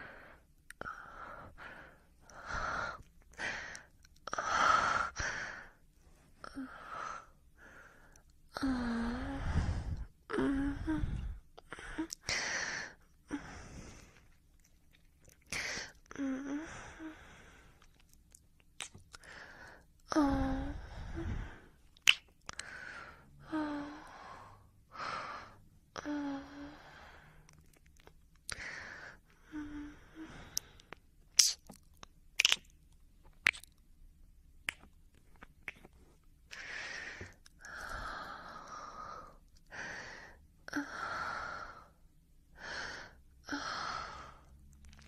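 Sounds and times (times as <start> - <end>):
person sighing and gasping: 8.6 - 14.0.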